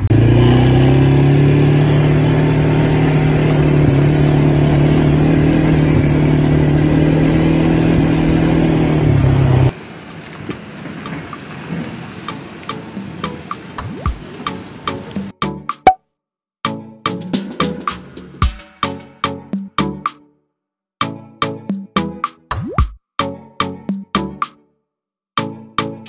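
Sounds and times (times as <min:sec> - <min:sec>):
atv engine running: 0:00.0 - 0:15.3.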